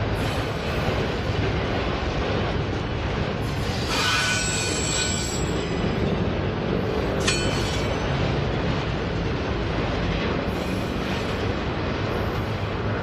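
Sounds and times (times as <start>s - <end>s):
train wheels rumbling on rails: 0.0s - 13.0s
high wheel squeal: 3.4s - 5.8s
sharp metallic clank: 7.1s - 8.2s.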